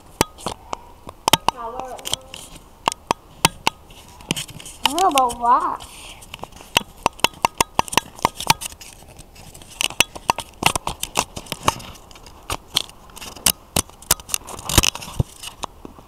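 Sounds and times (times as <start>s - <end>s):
fingers tapping on camera: 6.2s - 15.7s.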